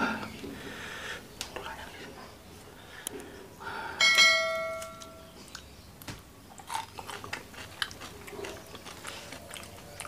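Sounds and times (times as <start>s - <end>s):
bell chime: 4.0s - 5.2s
eating by hand: 4.8s - 10.0s.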